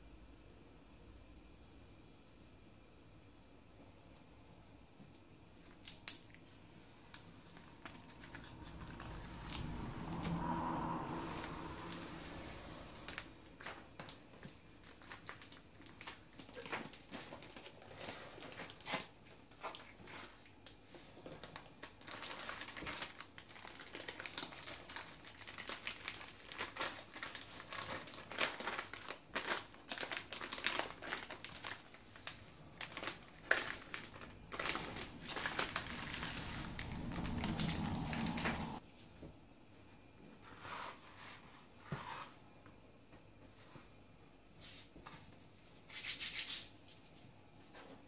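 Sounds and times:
plastic bag crinkling: 7.0s - 20.5s, 21.2s - 38.8s.

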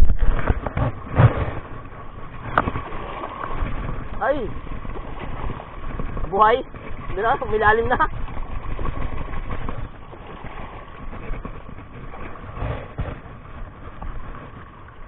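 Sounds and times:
steady low rumble: 0.0s - 15.0s
water splashing over rock: 0.0s - 15.0s.

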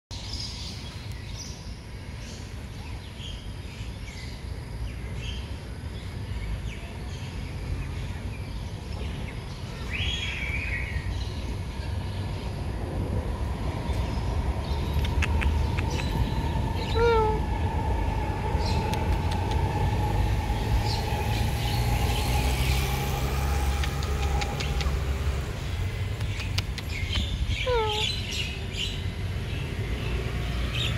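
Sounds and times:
birds chirping: 13.6s - 30.9s
long bird call: 15.2s - 17.6s, 26.9s - 28.6s.

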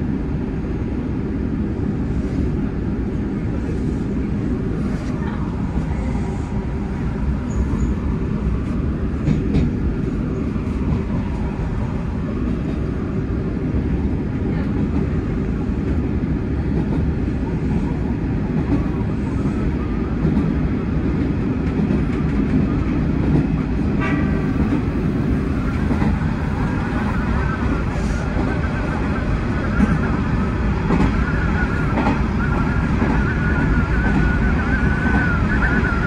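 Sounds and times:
train wheels rumbling on rail: 0.0s - 36.0s
train horn blast: 24.0s - 24.8s.

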